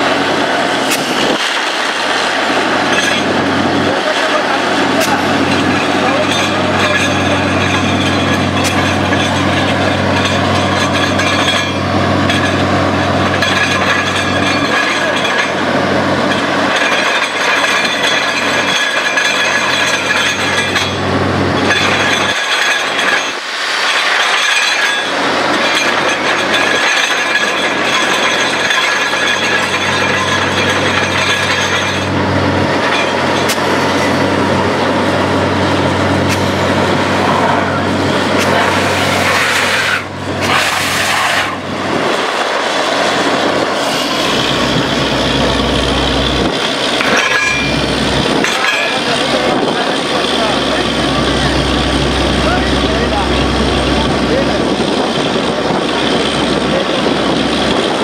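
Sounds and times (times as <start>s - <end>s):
compressed air rushing: 0.0s - 11.0s, 32.1s - 57.4s
drilling rig engine drone: 0.0s - 58.0s.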